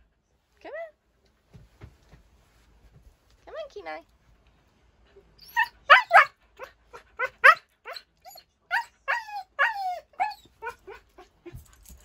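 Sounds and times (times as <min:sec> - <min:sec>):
puppy whining and yipping: 0:05.4 - 0:11.6.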